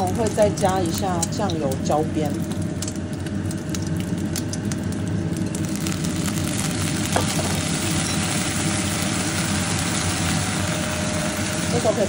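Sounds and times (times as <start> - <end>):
steady low hum: 0.0 - 12.0
sauce sizzling in a hot pan: 2.4 - 12.0.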